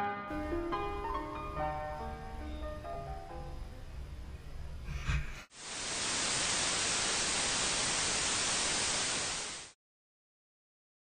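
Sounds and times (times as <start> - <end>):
white noise static hiss: 0.3 - 4.9, 5.5 - 9.8.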